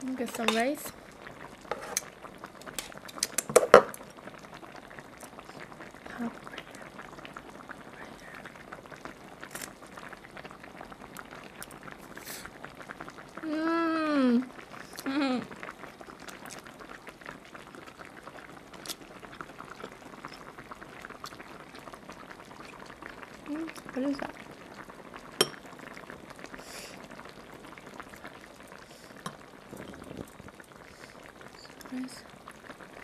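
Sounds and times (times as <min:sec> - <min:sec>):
pot simmering with fine bubbling: 0:00.0 - 0:33.0
person humming: 0:15.0 - 0:15.5.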